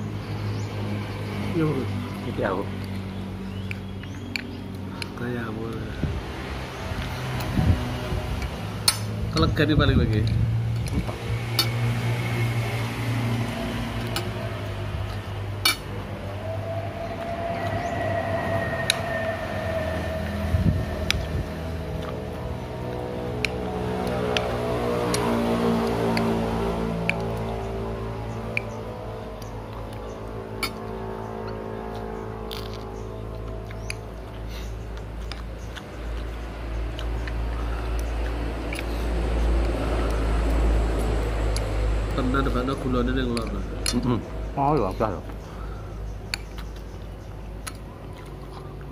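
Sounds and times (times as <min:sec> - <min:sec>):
low hum: 0:05.8 - 0:42.2
low rumble: 0:05.9 - 0:42.1
steady tone: 0:11.2 - 0:33.6.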